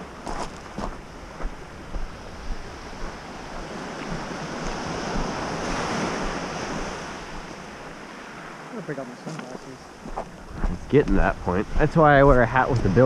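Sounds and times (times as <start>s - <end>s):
wind rumbling on microphone: 0.0s - 8.6s, 9.4s - 13.0s.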